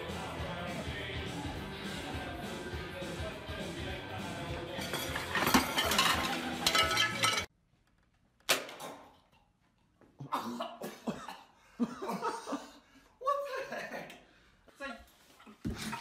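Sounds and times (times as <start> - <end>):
plates clattering and crashing: 4.8 - 7.5.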